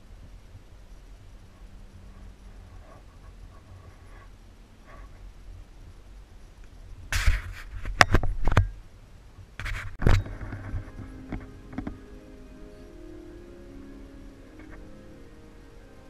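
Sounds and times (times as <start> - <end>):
faint steady musical tones: 0.0 - 7.1, 8.6 - 16.0
scraping and rubbing on microphone: 2.1 - 5.4, 7.1 - 8.6, 9.6 - 12.0.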